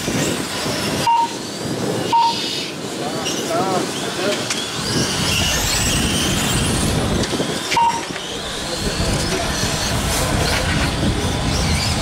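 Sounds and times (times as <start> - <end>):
electric whine of rc cars: 2.7 - 12.0.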